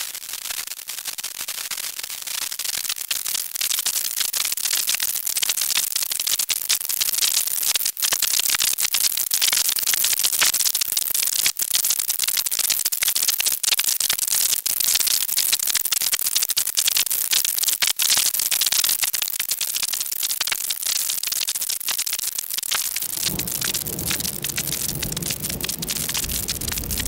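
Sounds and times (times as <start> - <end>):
synthesized fire crackle: 0.0 - 27.0
low rumble: 23.0 - 27.0.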